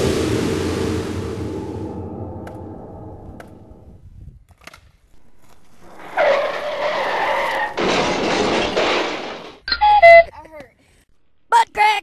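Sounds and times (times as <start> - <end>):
scraping rush: 0.0 - 4.2
skidding screech: 5.7 - 8.4.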